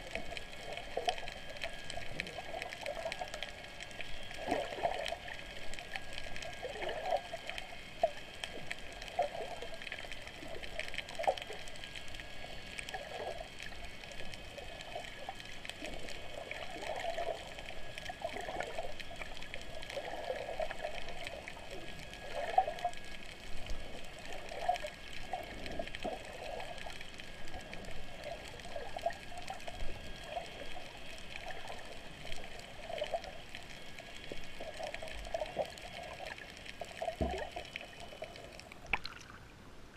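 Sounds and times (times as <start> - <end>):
underwater gurgling: 0.0 - 39.9.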